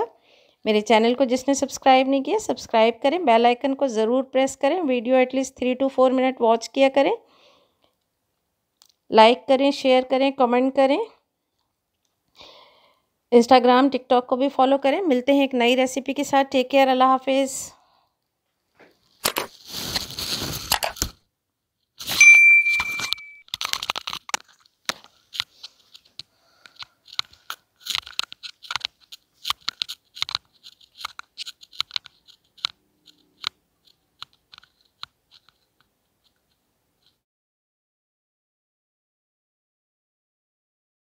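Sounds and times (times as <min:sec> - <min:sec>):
bell-like ding: 0:22.2 - 0:23.4.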